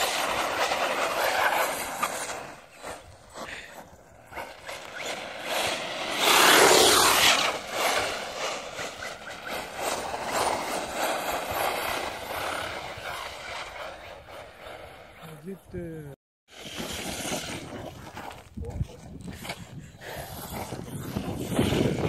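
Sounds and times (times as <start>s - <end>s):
rc truck tyres spinning on ice: 0.0s - 22.0s.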